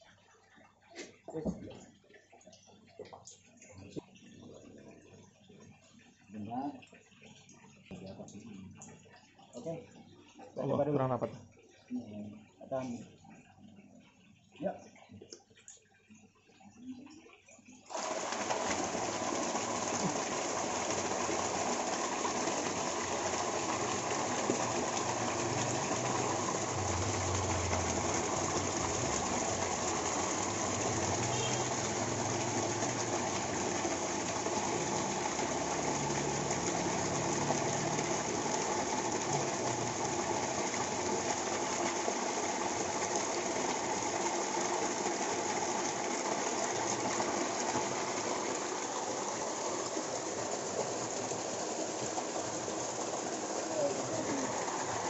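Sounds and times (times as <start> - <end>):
pond pump running: 0.0 - 13.3, 16.6 - 55.0
water gushing and splashing: 17.8 - 55.0.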